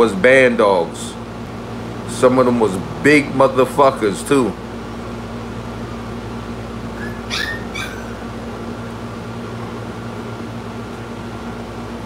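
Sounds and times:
machine hum: 0.0s - 12.0s
high rising squeaks: 7.0s - 8.3s.

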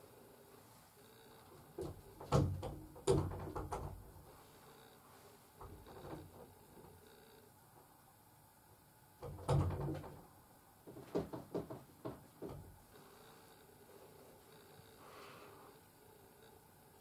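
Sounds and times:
dull knock: 10.9s - 12.6s.

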